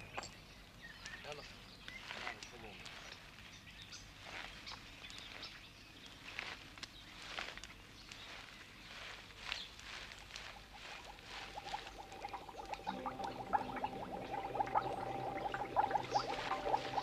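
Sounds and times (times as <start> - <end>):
footsteps through leafy undergrowth: 2.0 - 12.1
water bubbling and gurgling: 10.3 - 17.0.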